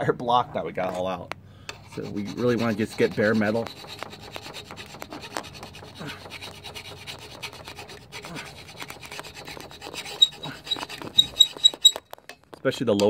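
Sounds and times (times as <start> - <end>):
hand file rasping on metal: 1.7 - 12.1.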